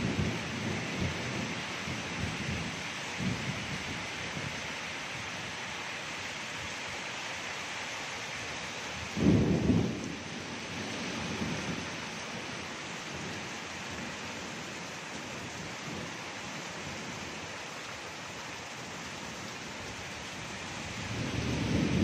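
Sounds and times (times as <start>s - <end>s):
thunder rumbling: 0.0s - 3.8s, 9.1s - 12.4s, 20.8s - 22.0s
heavy rain pouring: 0.0s - 22.0s.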